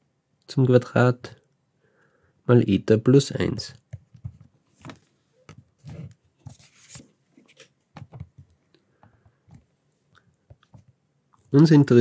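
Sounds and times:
pen scratching and tapping tablet: 3.9 - 8.6.

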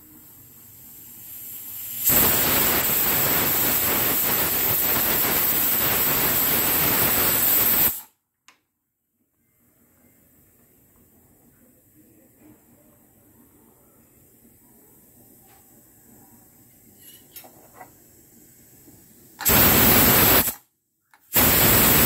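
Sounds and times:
pressure cooker steam hiss: 0.0 - 8.1, 17.9 - 20.6, 21.2 - 22.0.

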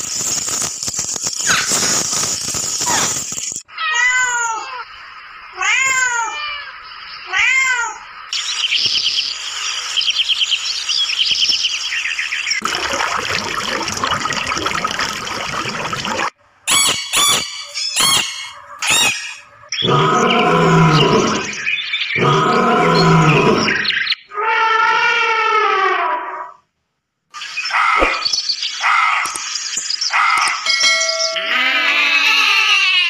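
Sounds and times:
cat meowing: 5.6 - 8.0
short sharp squeaks: 16.7 - 19.4
lion roaring: 19.8 - 23.9.

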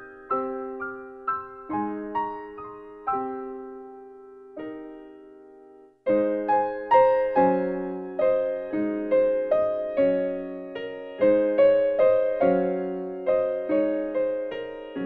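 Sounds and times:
piano music: 0.0 - 15.0.

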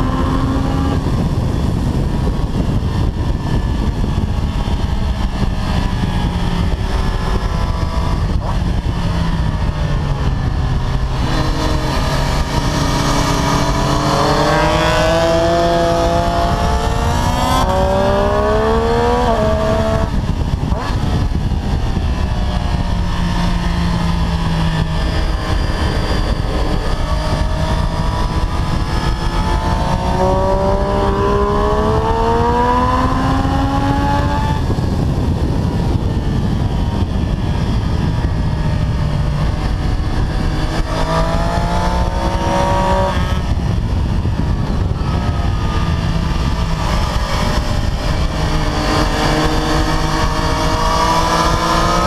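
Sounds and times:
motorcycle engine accelerating: 0.0 - 52.0
wind rush on microphone: 0.0 - 52.0.

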